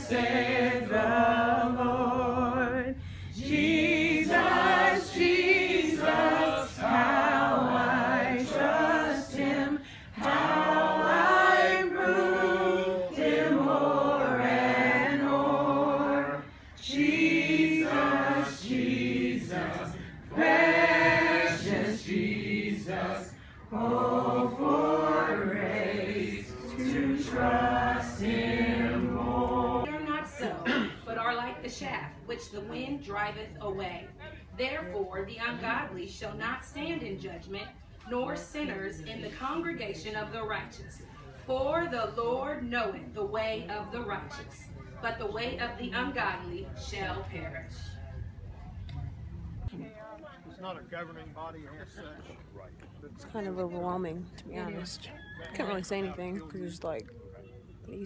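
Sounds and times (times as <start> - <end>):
group singing unaccompanied: 0.0 - 30.1.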